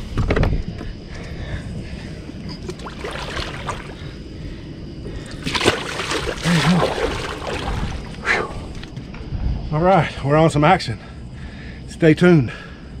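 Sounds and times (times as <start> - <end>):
fish splashing in water: 2.6 - 4.2, 5.2 - 8.2.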